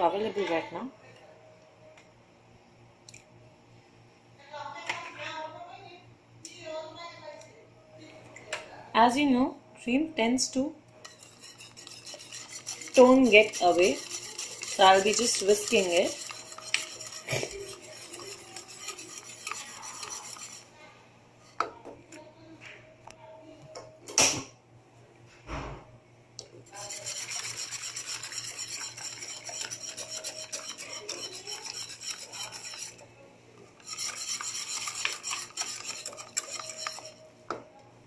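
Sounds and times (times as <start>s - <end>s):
whisk scraping a pot: 11.0s - 20.8s, 26.6s - 33.1s, 33.7s - 37.3s.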